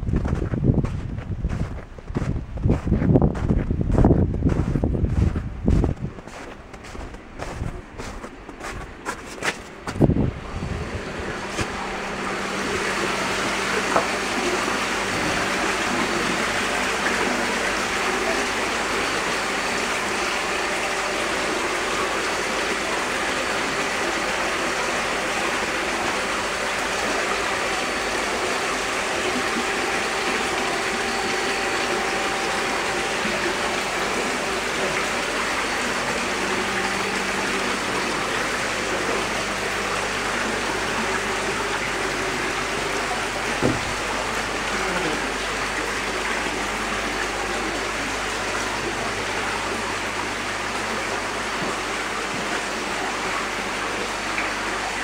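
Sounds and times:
water pouring and splashing: 11.0s - 55.0s.

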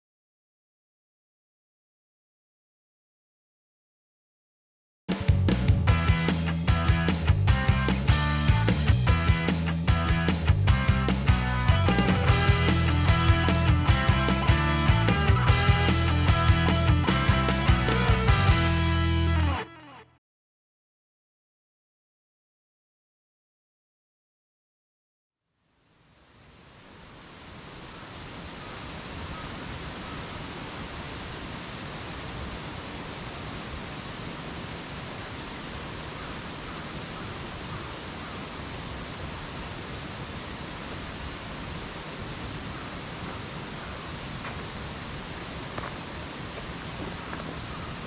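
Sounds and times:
rushing forest ambience: 5.9s - 19.1s, 25.6s - 48.0s
footsteps on dirt: 44.3s - 48.0s.

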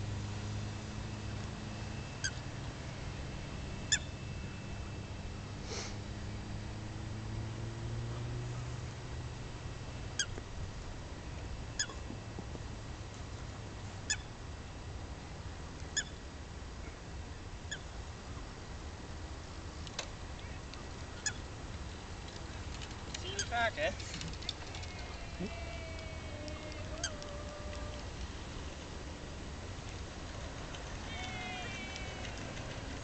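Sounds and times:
low outdoor hum: 0.0s - 33.0s
geese honking: 24.7s - 28.1s.

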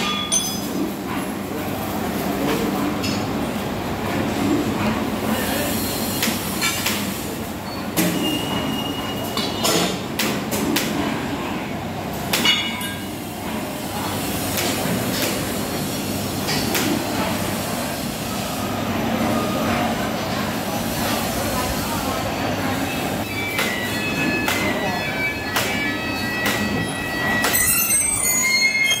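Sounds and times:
high squeal: 23.2s - 29.0s.

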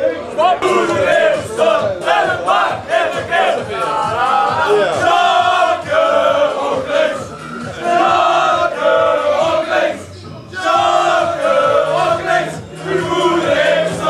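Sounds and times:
men singing in unison: 0.5s - 14.0s.

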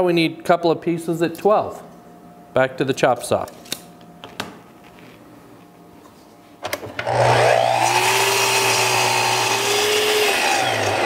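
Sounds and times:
miter saw cutting wood: 7.0s - 11.0s.

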